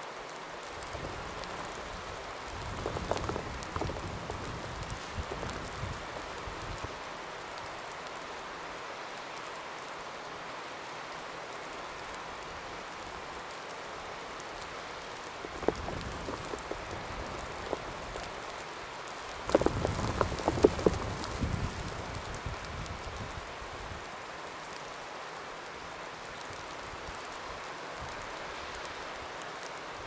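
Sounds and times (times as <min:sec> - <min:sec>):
snowstorm hiss: 0:00.0 - 0:30.0.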